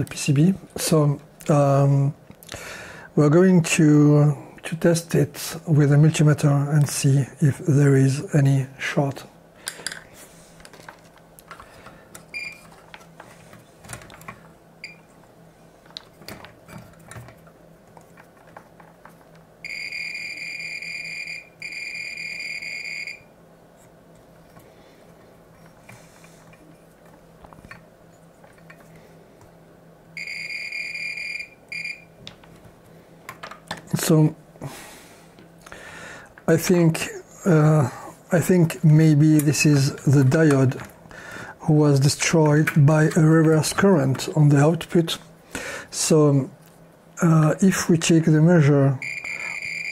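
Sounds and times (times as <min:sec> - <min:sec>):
multimeter continuity beep: 0:19.6 - 0:23.3, 0:30.2 - 0:32.2, 0:49.0 - 0:49.9.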